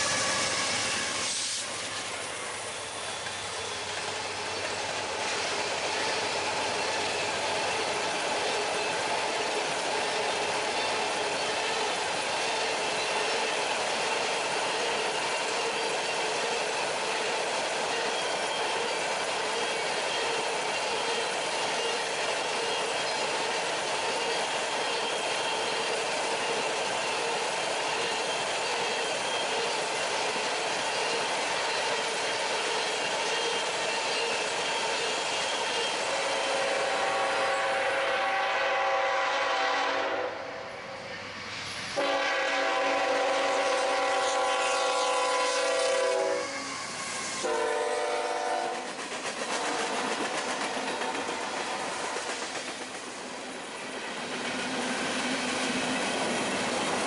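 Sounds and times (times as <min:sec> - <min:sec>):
train wheels clattering on rails: 0:00.0 - 0:36.6, 0:42.0 - 0:57.0
locomotive air horn blasts: 0:36.5 - 0:40.6, 0:42.0 - 0:46.8, 0:47.4 - 0:48.8.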